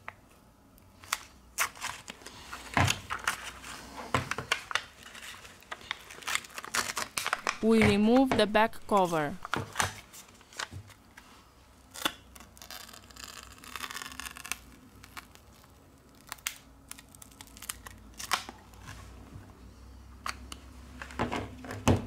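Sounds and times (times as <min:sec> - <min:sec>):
adhesive crackling and peeling: 0:04.6 - 0:07.7, 0:11.9 - 0:18.8.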